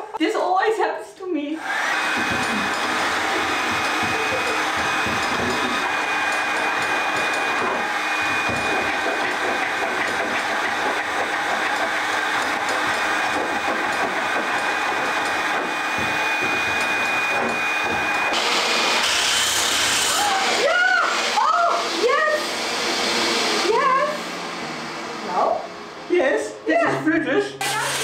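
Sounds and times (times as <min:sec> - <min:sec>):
heat gun fan whine: 0:01.6 - 0:26.1
paint scraper scraping wood: 0:01.8 - 0:20.3.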